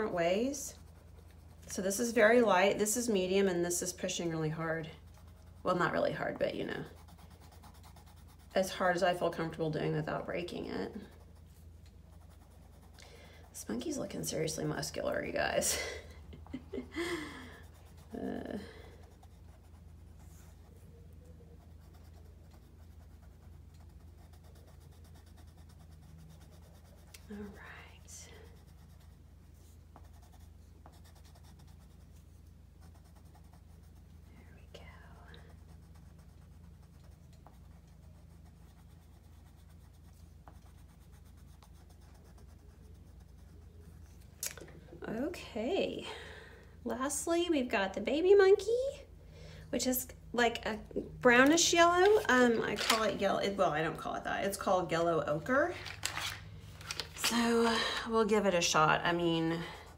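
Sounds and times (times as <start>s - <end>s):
pencil scratching on paper: 0.0s - 15.7s, 17.5s - 44.3s.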